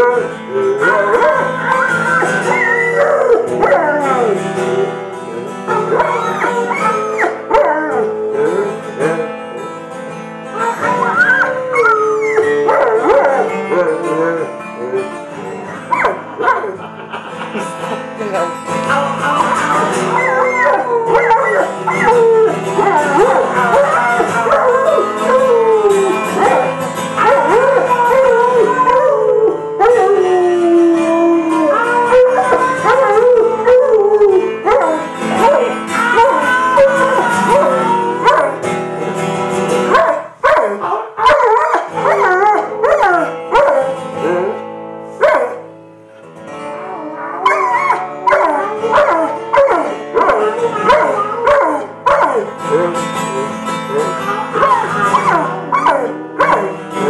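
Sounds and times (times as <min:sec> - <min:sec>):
dog howling: 0:00.0 - 0:09.4, 0:10.5 - 0:16.8, 0:19.7 - 0:39.2, 0:39.9 - 0:45.7, 0:46.7 - 0:57.0
chords being played: 0:00.0 - 0:16.8, 0:17.8 - 0:39.9.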